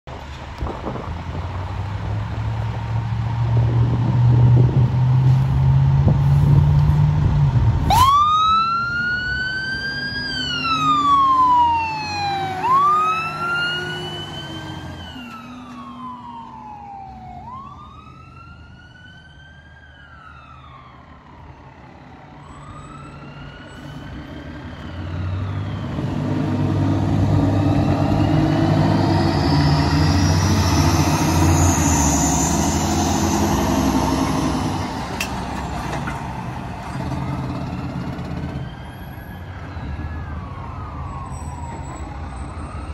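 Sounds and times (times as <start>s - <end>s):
fire engine diesel engine: 0.1s - 42.9s
ladder truck engine approaching: 0.1s - 42.9s
wailing siren: 7.8s - 35.3s, 38.2s - 42.9s.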